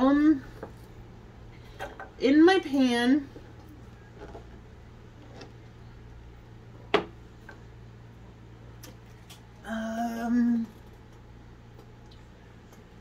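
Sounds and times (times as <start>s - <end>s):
faint low hum: 0.0s - 13.0s
woman humming: 9.6s - 10.9s.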